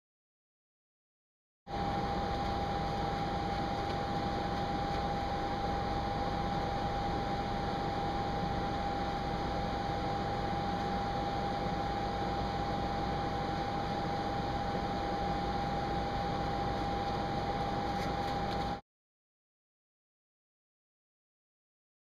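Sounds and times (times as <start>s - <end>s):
high-pitched hum: 1.7s - 18.8s.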